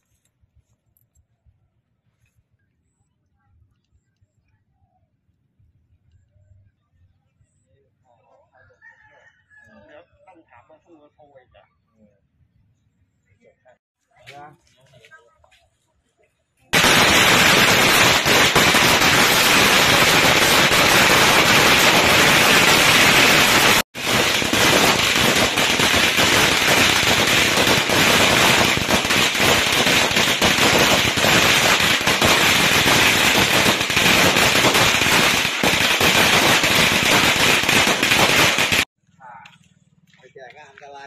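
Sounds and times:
firecrackers crackling: 16.7s - 39.6s.

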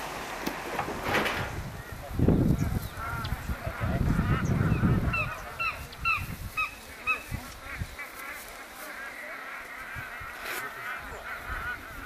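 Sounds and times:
penguins honking: 3.0s - 12.0s.

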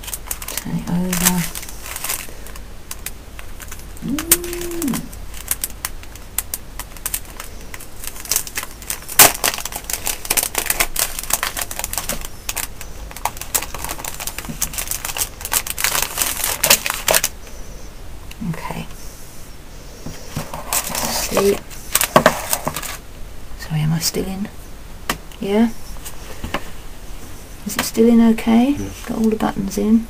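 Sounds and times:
plastic wrapping crinkling: 0.0s - 17.6s, 20.2s - 23.0s.

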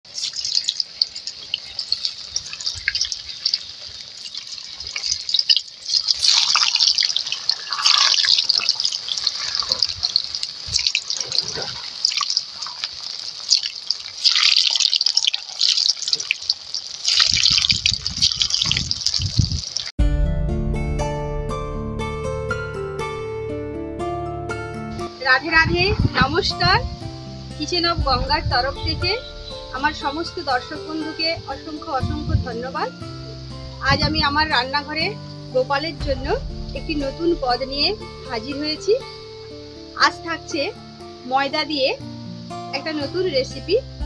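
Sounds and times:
dough sizzling in hot oil: 0.1s - 20.0s.

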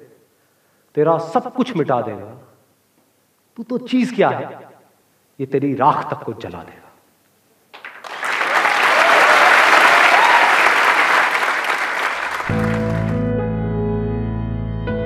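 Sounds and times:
audience applauding: 7.7s - 13.3s.

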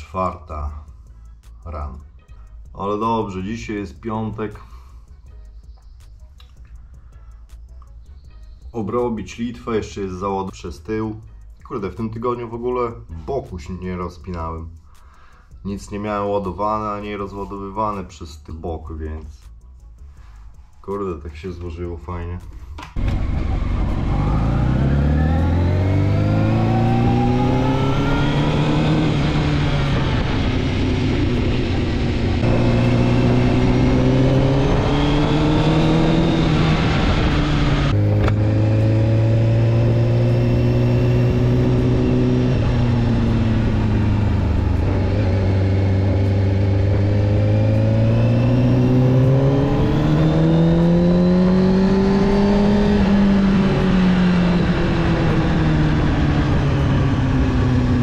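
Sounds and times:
gear changes: 22.7s - 58.0s
motorcycle engine accelerating: 23.0s - 58.0s.

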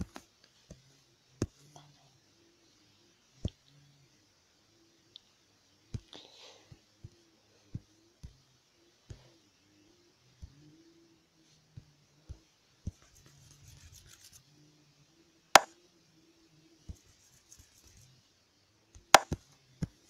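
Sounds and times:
scratchy stroke across glass: 13.0s - 14.4s
taps on a touchscreen: 19.2s - 19.4s.

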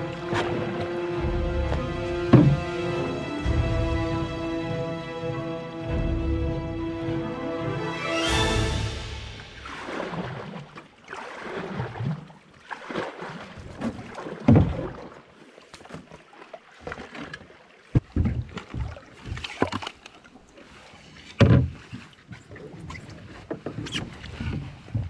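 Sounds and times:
paddle knocking canoe hull: 0.0s - 4.8s, 17.8s - 19.9s, 21.4s - 22.1s
paddle splashing in water: 0.0s - 25.0s.

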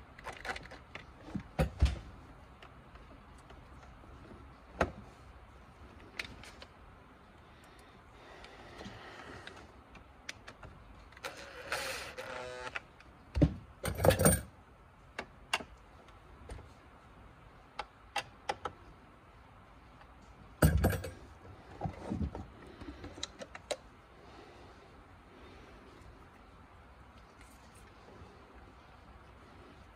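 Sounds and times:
plastic parts clicking and rattling: 0.0s - 4.0s.

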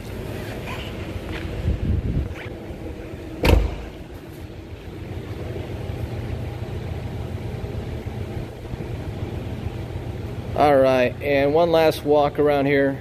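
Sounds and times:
steady low hum: 0.0s - 13.0s
car door shutting: 3.4s - 4.1s.

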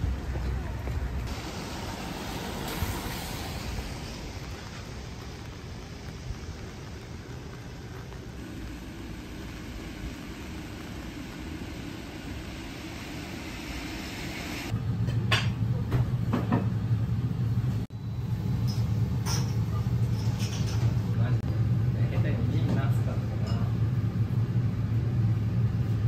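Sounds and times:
street hiss: 0.0s - 14.8s
restaurant low hum: 0.0s - 26.0s.

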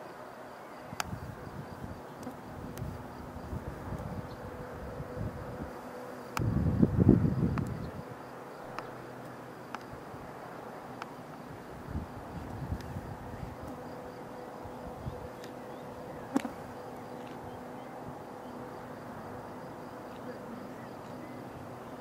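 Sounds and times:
distant jet engines droning: 0.0s - 22.0s.

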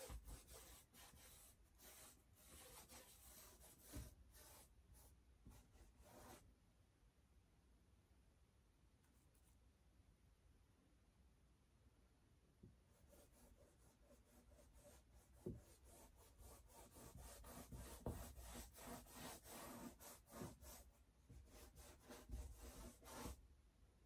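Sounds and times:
paintbrush scrubbing on canvas: 0.0s - 6.4s, 12.9s - 23.4s.

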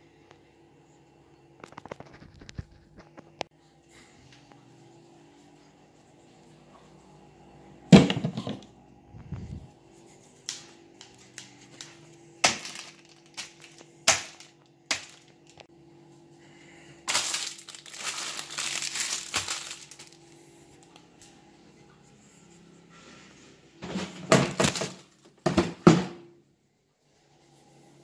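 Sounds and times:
plastic wrapping crinkling and tearing: 1.7s - 3.0s, 11.4s - 15.6s, 17.0s - 20.9s.

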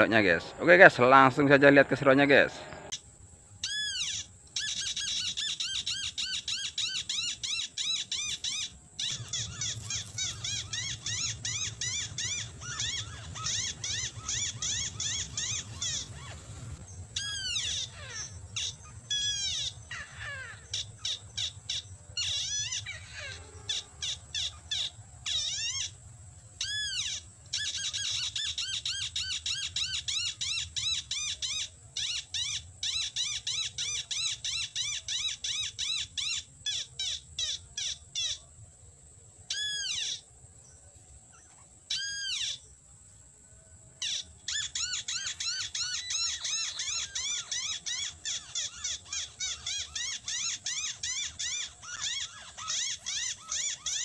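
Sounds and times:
bird lure call chirping: 3.6s - 23.2s, 44.0s - 54.0s.

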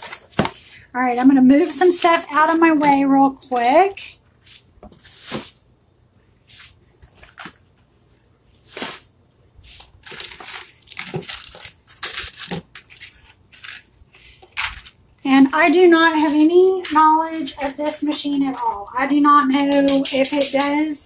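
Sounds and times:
plastic packaging crinkling: 9.8s - 15.0s.

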